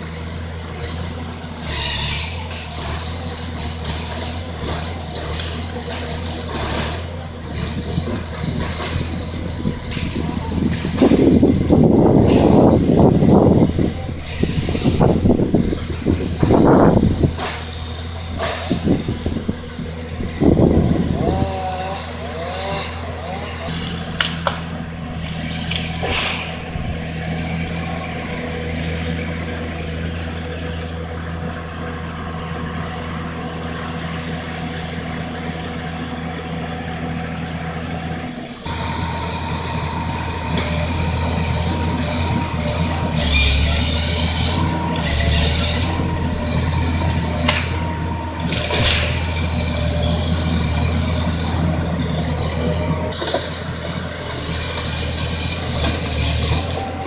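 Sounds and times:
diesel engine running: 0.0 - 57.0
high steady whine: 38.2 - 54.7.

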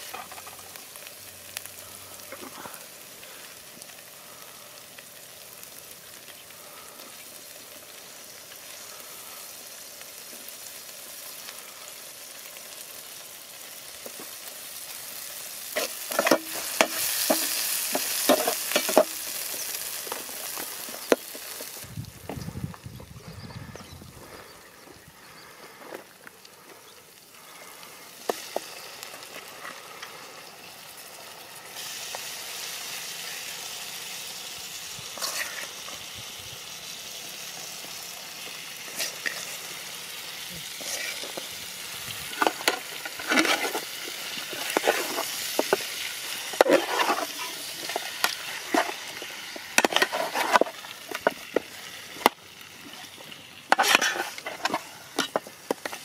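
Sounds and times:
chicken sizzling in hot oil: 0.0 - 56.0
metal blade scraping pot: 15.7 - 21.8, 35.2 - 36.0, 40.7 - 41.5, 42.2 - 52.3, 53.7 - 56.0.

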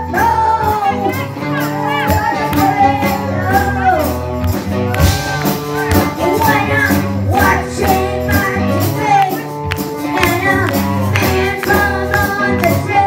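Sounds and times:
child singing: 0.0 - 4.1, 6.1 - 9.5, 10.1 - 13.0
electric guitars: 0.0 - 13.0
steady drum beat: 1.5 - 13.0.

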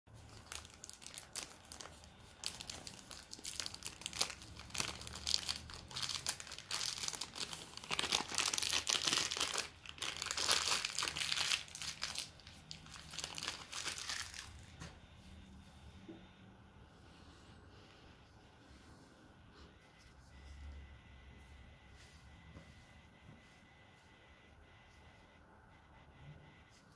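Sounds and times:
cellophane crinkling: 0.1 - 14.9.

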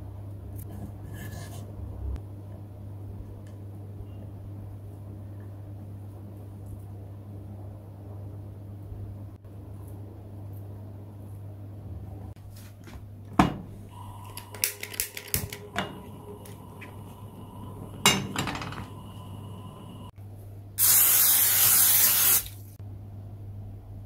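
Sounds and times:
metal cookware clattering: 18.0 - 19.0
aerosol cooking spray hissing: 20.8 - 22.6.

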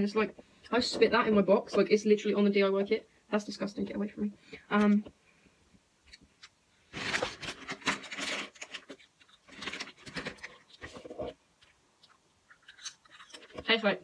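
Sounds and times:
plastic packaging crinkling: 6.9 - 11.4.

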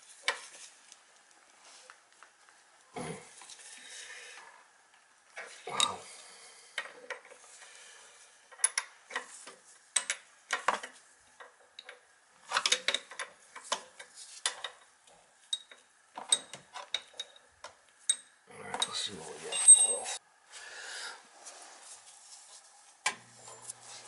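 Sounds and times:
metallic clinks and scrapes: 18.1 - 20.2, 23.4 - 24.0.

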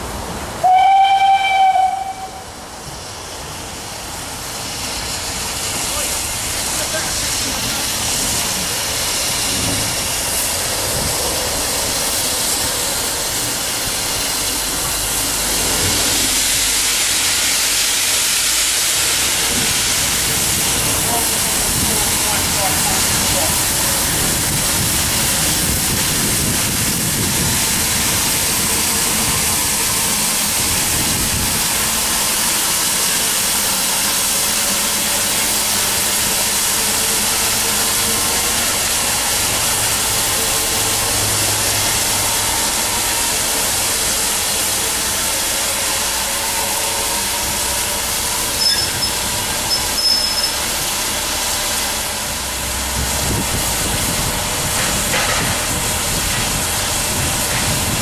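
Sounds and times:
steam locomotive hissing: 0.0 - 58.0
brief high squeaks: 48.6 - 50.6.

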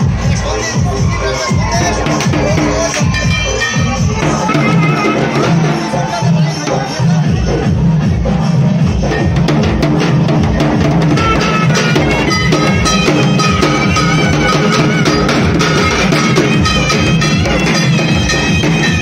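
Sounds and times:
drums beaten with thin sticks: 0.0 - 19.0
high-pitched melody: 1.8 - 7.1, 11.1 - 19.0.

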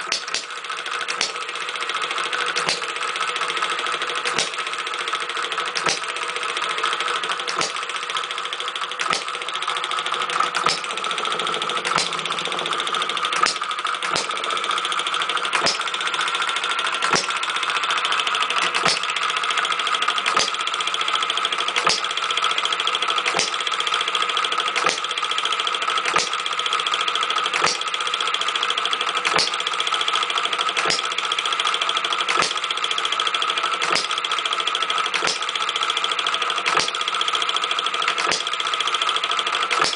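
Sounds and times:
engine firing pops: 0.0 - 0.5, 2.6 - 2.9, 4.2 - 4.6, 5.8 - 6.1, 7.4 - 7.9, 9.0 - 9.4, 10.4 - 11.0, 11.8 - 12.6, 13.3 - 14.4, 15.5 - 15.9, 17.0 - 17.4, 18.6 - 19.2, 20.2 - 20.6, 21.8 - 22.1, 23.3 - 23.6, 24.8 - 25.1, 26.1 - 26.4, 27.6 - 27.9, 29.2 - 29.6, 30.8 - 31.1, 32.3 - 32.6, 33.8 - 34.2, 35.1 - 35.5, 36.6 - 37.0, 38.1 - 38.5
model engine whir and clatter: 0.0 - 39.9.

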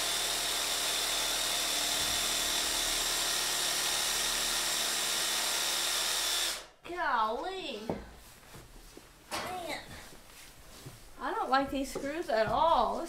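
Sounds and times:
power drill whining: 0.0 - 6.7.

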